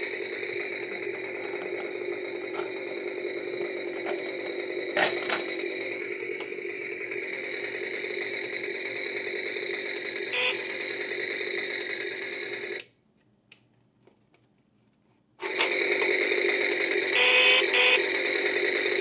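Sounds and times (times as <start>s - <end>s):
toy chainsaw buzzing drone: 0.0s - 12.8s, 15.5s - 19.0s
faint plastic clicks: 12.8s - 14.7s.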